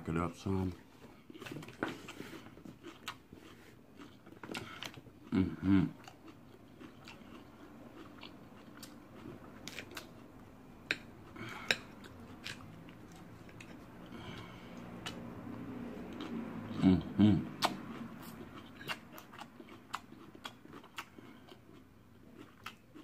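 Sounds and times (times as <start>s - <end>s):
chewing salad: 1.1s - 23.0s
person humming mmm: 5.3s - 6.1s, 16.7s - 17.8s.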